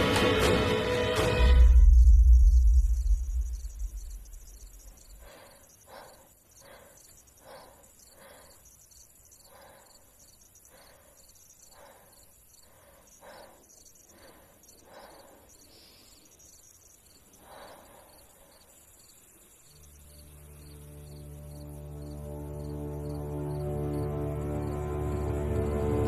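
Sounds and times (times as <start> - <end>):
crickets chirping: 0.3 - 26.0
low rumble: 1.4 - 5.3.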